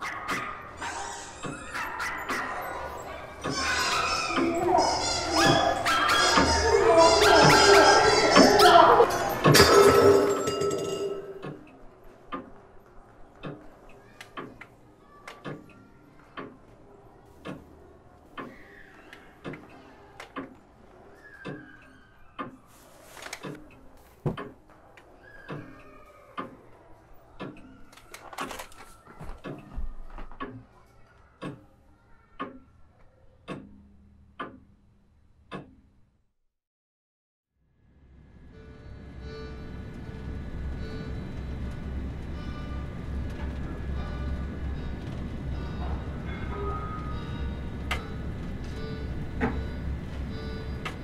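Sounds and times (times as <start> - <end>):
clock ticking: 13.4 - 14.7, 15.3 - 16.7, 17.3 - 18.6, 19.4 - 20.6, 27.4 - 27.8, 31.3 - 31.8, 32.4 - 32.7, 33.4 - 34.8, 35.4 - 35.9, 39.2 - 51.0.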